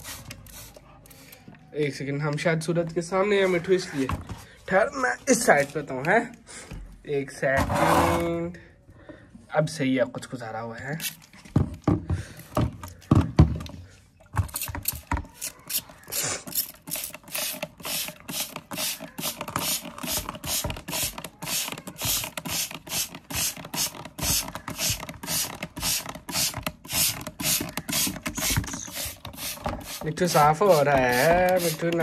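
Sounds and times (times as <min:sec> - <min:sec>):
spray bottle hissing: 0:00.0 - 0:01.2, 0:15.4 - 0:32.0.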